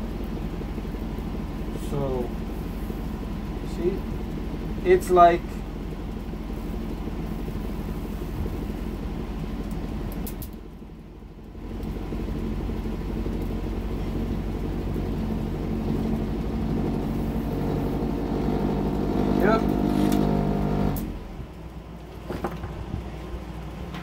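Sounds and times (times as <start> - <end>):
electric motor hum: 11.6 - 21.8.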